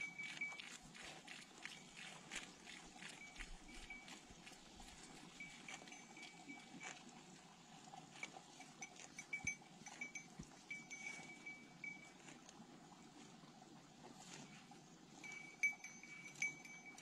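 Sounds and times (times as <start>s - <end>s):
cowbell clinking: 0.0s - 0.8s, 3.0s - 7.2s, 8.1s - 12.4s, 15.2s - 17.0s.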